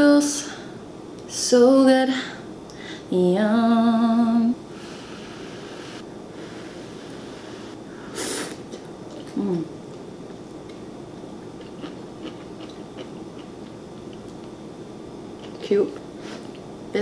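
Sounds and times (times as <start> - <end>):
quiet chewing with mouth clicks: 11.5 - 14.6.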